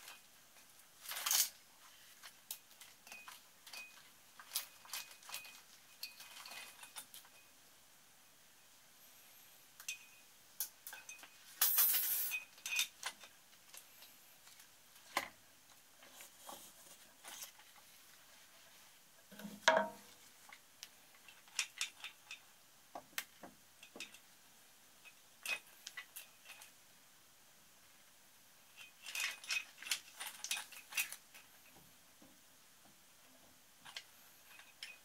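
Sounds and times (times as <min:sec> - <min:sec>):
light metal clinks and scrapes: 0:00.0 - 0:07.6, 0:09.8 - 0:14.6, 0:25.0 - 0:26.8, 0:28.7 - 0:31.9, 0:33.8 - 0:35.0.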